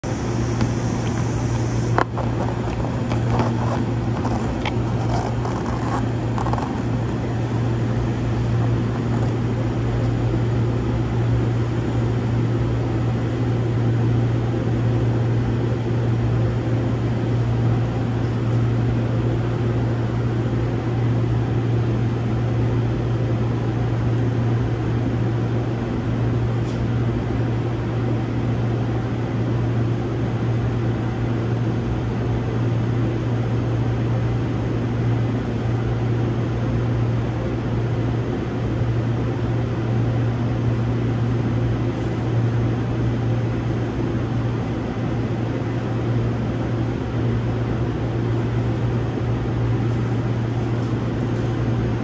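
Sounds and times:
train equipment hum and whirr: 0:00.0 - 0:52.0.

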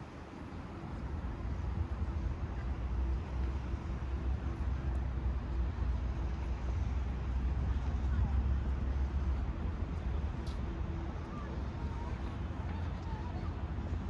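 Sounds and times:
city traffic noise: 0:00.0 - 0:14.0
low engine rumble: 0:00.0 - 0:14.0.

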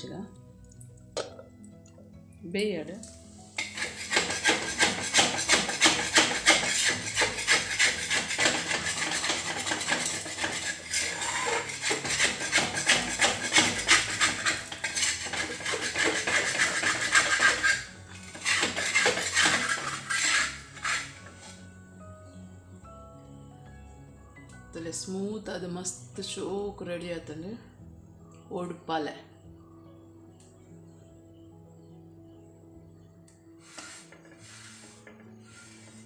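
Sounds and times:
faint background music: 0:00.0 - 0:36.0
spatula scraping a metal pan: 0:03.6 - 0:21.7, 0:33.6 - 0:36.0.

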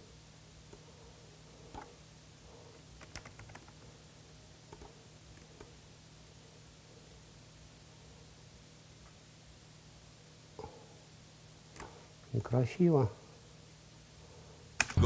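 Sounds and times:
low steady hum: 0:00.0 - 0:15.0
mouse and keyboard clicks: 0:03.0 - 0:03.8, 0:04.7 - 0:05.7.

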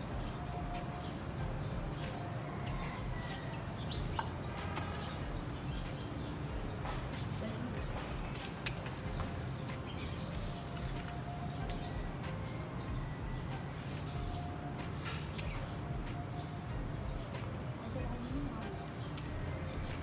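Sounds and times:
bird chirps: 0:00.0 - 0:20.0.

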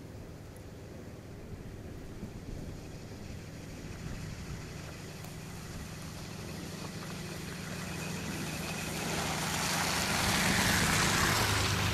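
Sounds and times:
car engine humming: 0:00.0 - 0:11.9
tyres hissing through snow: 0:02.6 - 0:11.9.

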